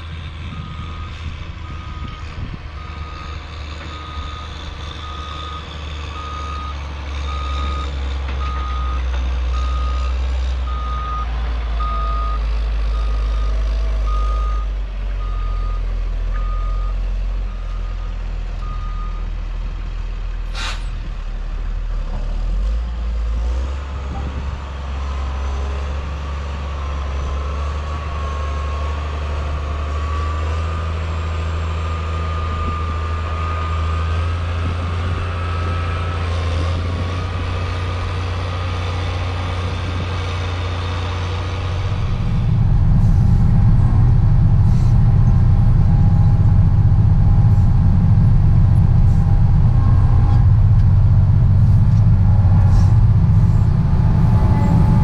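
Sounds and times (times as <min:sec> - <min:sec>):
grader engine running: 0:00.0 - 0:55.0
rising whine: 0:41.6 - 0:55.0.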